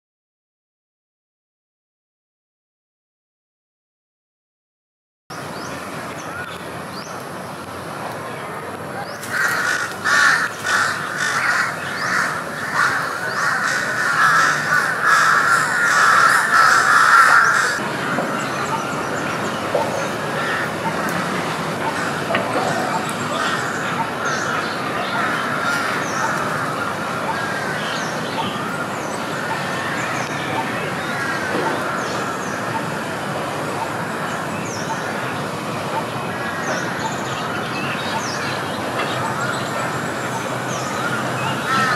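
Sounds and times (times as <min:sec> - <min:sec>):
city traffic hum: 0:05.3 - 0:41.9
crows cawing: 0:09.2 - 0:18.8, 0:19.9 - 0:33.1, 0:36.3 - 0:37.1, 0:41.0 - 0:41.9.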